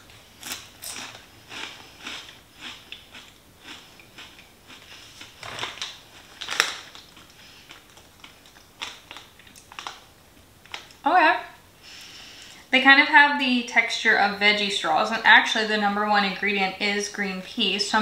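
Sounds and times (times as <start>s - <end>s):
person chewing crunchy crisps: 0.0s - 11.0s.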